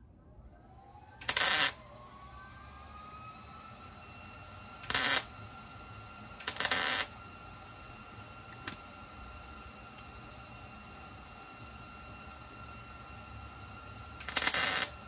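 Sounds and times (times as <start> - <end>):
welder hissing: 1.3 - 1.8, 4.8 - 5.3, 6.4 - 7.2, 14.2 - 15.0.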